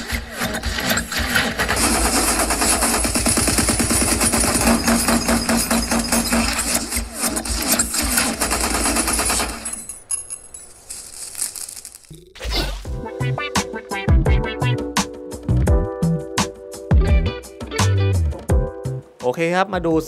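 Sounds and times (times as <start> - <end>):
rapid automatic gunfire: 1.4 - 9.9.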